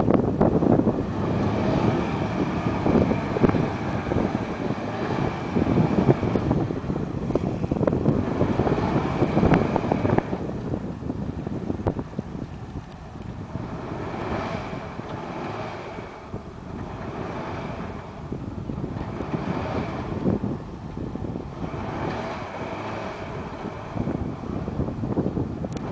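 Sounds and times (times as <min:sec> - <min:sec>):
truck engine running hard: 0:00.0 - 0:25.9
whine: 0:00.0 - 0:25.9
wind buffeting microphone: 0:00.0 - 0:25.9.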